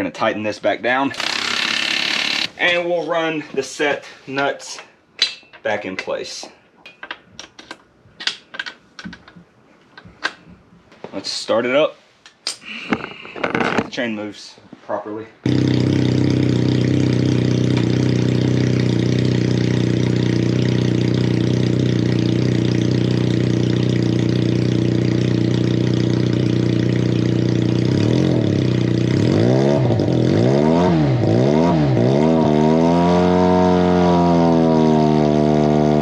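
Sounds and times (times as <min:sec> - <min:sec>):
motorcycle engine revving: 0:01.2 - 0:02.5, 0:15.5 - 0:36.0.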